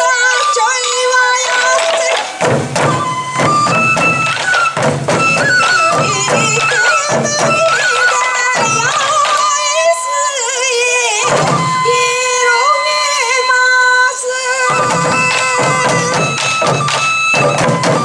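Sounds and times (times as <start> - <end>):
high wavering melody: 0.0 - 18.0
taiko drums beaten with sticks: 1.4 - 9.5, 11.2 - 12.0, 14.7 - 18.0.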